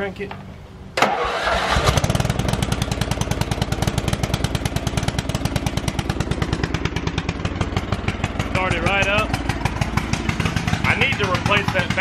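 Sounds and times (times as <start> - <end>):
lawn mower engine running: 1.0 - 12.0.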